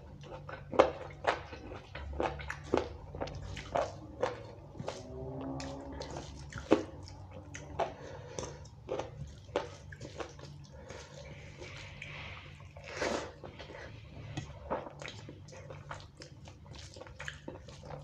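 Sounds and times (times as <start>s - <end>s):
mouth eating sounds: 0.0s - 14.0s.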